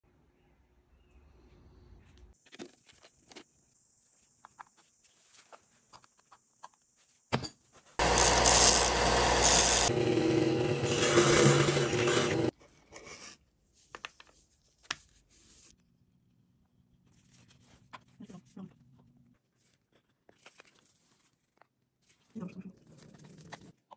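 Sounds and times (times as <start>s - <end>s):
belt sander grinding: 8.0s - 12.5s.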